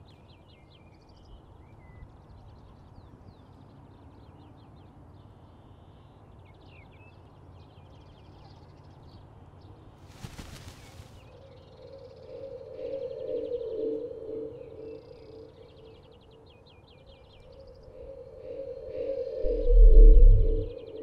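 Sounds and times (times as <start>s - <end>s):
small birds chirping: 0.0s - 19.7s
faint low hiss: 9.9s - 11.4s.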